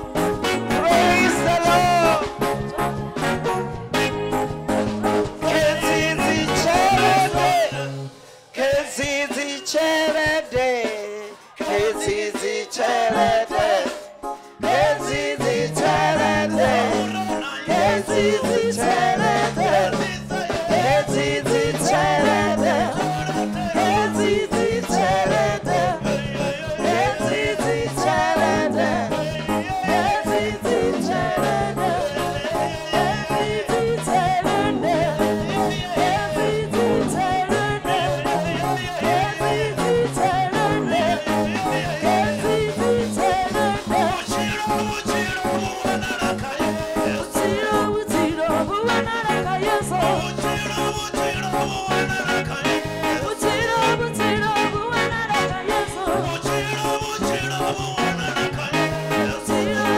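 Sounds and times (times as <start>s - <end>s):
repeating bass line: 0.0s - 8.1s, 14.6s - 59.9s
gospel singing: 0.0s - 59.9s.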